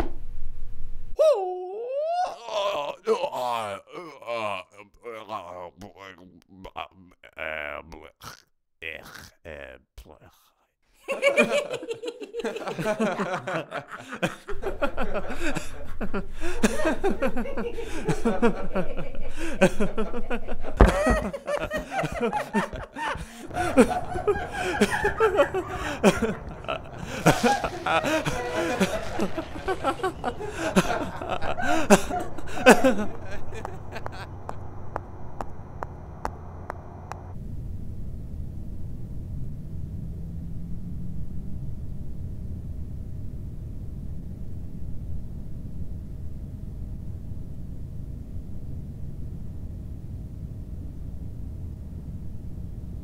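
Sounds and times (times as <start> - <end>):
thump: 0.0 - 0.3, 20.8 - 21.2
faint hum: 0.0 - 8.1, 11.0 - 53.0
people laughing: 2.0 - 8.1, 11.0 - 34.8
steady low rumble: 11.2 - 53.0.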